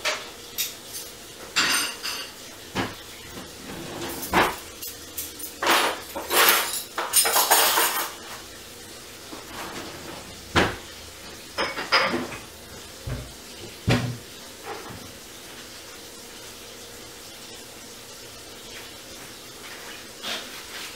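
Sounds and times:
household clinks and rattles: 3.6s - 8.2s.

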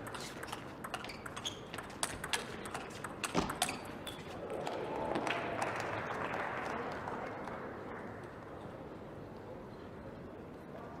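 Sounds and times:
ping pong ball hits: 0.0s - 4.2s
crowd noise: 2.2s - 11.0s.

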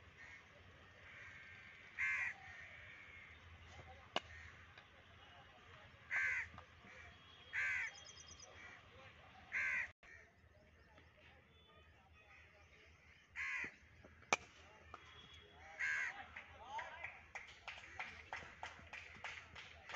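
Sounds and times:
crow cawing: 1.0s - 3.4s, 4.2s - 4.6s, 6.1s - 8.0s, 9.5s - 10.3s, 13.3s - 13.8s, 15.6s - 16.2s
cricket bat striking ball: 4.1s - 4.6s, 13.6s - 15.4s.

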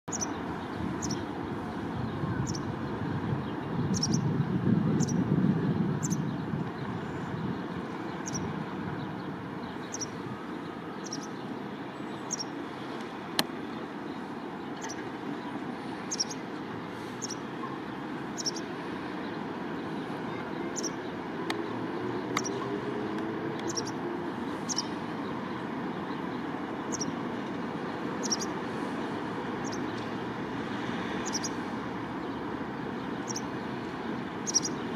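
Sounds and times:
traffic rumble: 0.0s - 34.9s
bird chirping: 0.1s - 1.3s, 2.3s - 2.7s, 3.8s - 4.3s, 6.0s - 12.6s, 13.7s - 16.4s, 17.1s - 22.8s, 23.6s - 25.0s, 25.9s - 27.2s, 28.2s - 28.6s, 29.6s - 30.0s, 31.2s - 31.6s, 33.0s - 33.5s, 34.4s - 34.9s.

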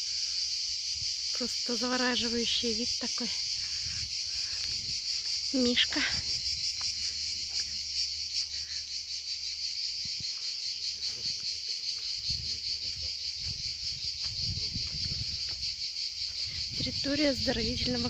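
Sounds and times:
insect chorus chirring: 0.0s - 18.0s
low rumbling thuds: 12.2s - 18.0s.

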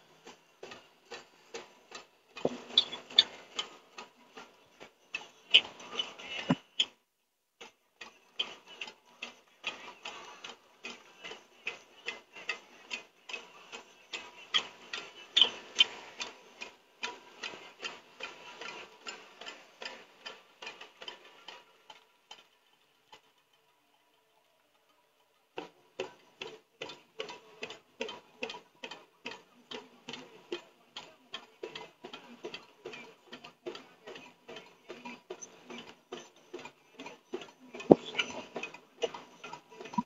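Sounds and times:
sharp ticking clicks: 0.2s - 7.0s.

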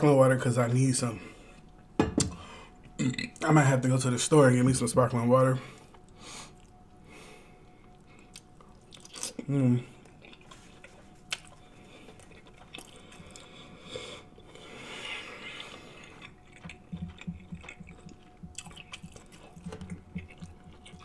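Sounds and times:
person chewing food: 5.8s - 6.9s, 7.7s - 21.0s.

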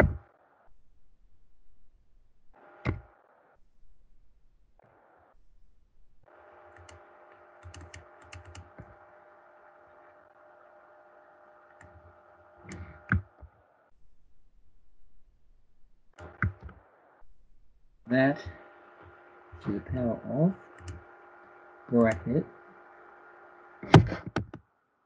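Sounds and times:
faint steady hum: 0.0s - 25.0s
computer mouse clicks: 6.3s - 9.0s, 11.7s - 13.5s, 16.1s - 16.8s, 20.6s - 21.1s.

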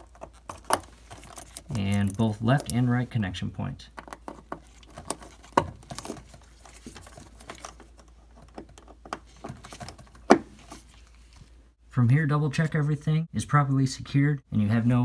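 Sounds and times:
small clicks and rustles: 0.0s - 2.8s, 4.0s - 11.6s.

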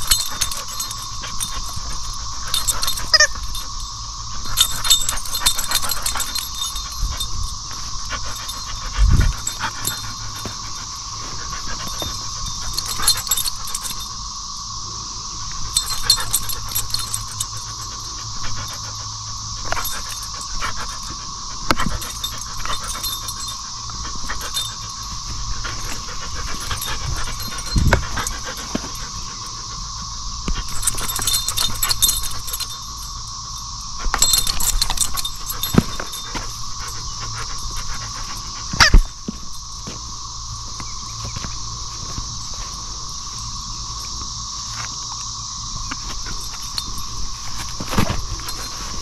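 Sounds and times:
high-pitched drone: 0.0s - 49.0s
jingling: 0.0s - 49.0s
squeaky toy squeaking: 3.1s - 3.4s.

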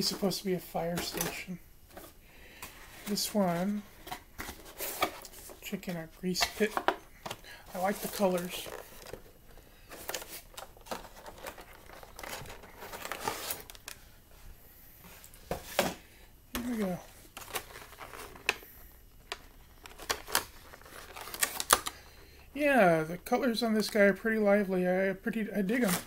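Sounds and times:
cardboard and plastic packaging crinkling: 0.0s - 14.1s, 16.6s - 22.2s, 25.6s - 26.0s.

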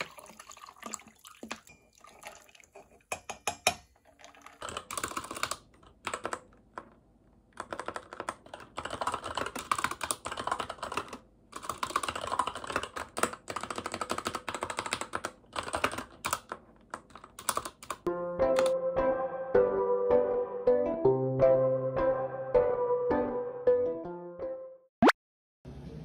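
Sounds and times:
fast mechanical keyboard typing: 4.3s - 6.8s, 7.6s - 18.1s.

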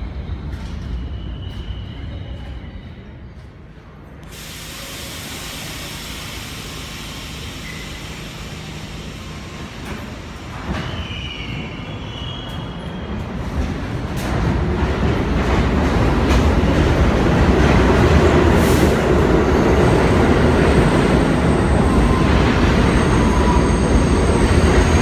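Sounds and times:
subway train running and hissing: 0.0s - 25.0s
train wheels squealing: 0.1s - 3.4s, 7.4s - 13.4s, 20.8s - 25.0s.

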